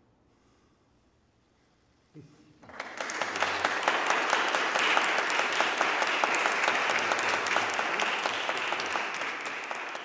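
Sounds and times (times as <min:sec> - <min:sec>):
audience applause: 0:02.6 - 0:10.0.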